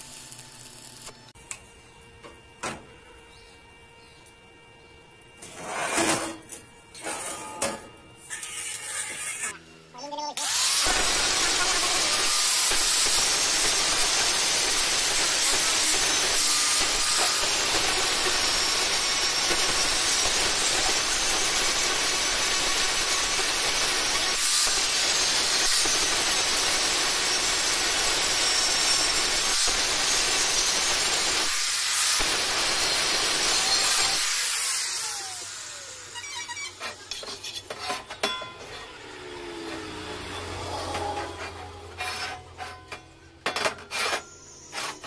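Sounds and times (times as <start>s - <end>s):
angle grinder grinding metal: 10.4s - 45.0s.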